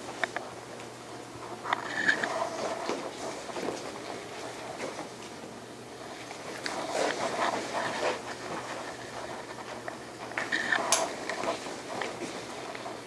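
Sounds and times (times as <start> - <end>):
footsteps shuffling on hard floor: 2.0 - 5.4, 6.1 - 13.0
clothing rustling: 6.1 - 13.0.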